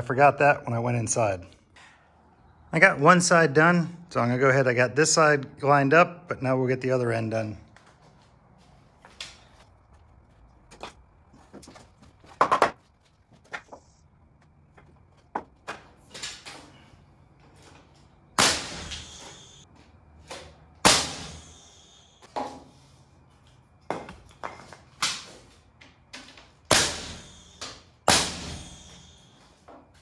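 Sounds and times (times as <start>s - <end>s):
knocks of wood: 11.6s - 12.8s
nail gun firing: 18.4s - 19.1s, 20.8s - 21.4s, 26.7s - 28.9s.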